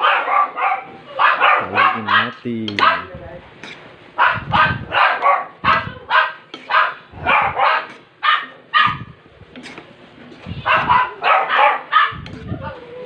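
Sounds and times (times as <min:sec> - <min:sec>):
dog barking: 0:00.0 - 0:03.1, 0:04.2 - 0:09.2, 0:10.6 - 0:12.8.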